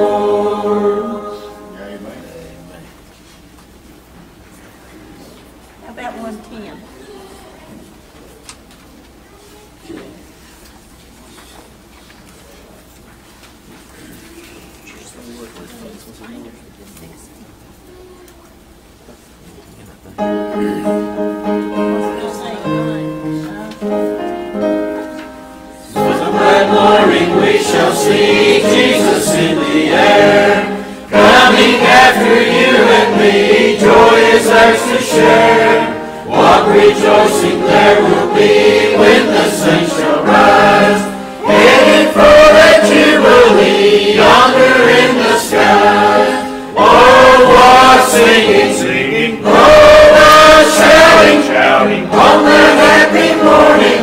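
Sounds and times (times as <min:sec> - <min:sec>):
choir singing a gospel hymn: 0:00.0 - 0:02.4, 0:20.8 - 0:54.0.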